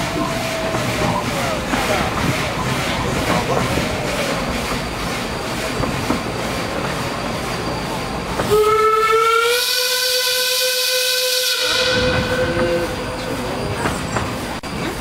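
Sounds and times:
miniature train rumble: 0.0s - 15.0s
steam train whistle: 8.4s - 13.2s.

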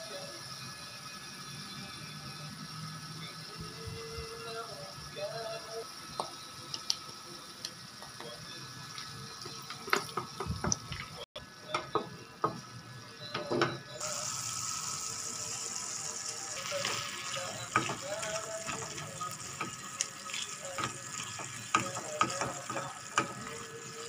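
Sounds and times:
sizzling stir-frying: 14.0s - 24.0s.

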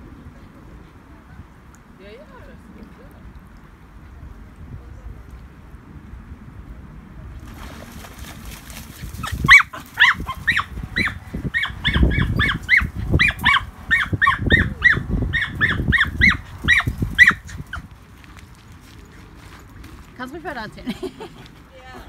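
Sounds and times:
dogs barking in high yaps: 9.2s - 17.9s.

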